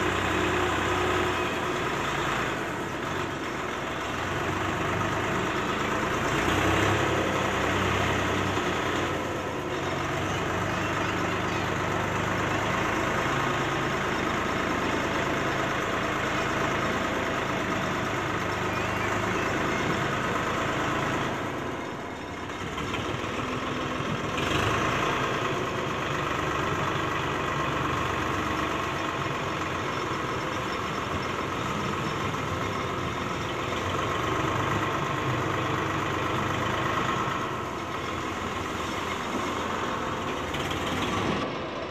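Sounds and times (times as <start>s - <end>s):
tractor diesel engine running: 0.0s - 41.9s.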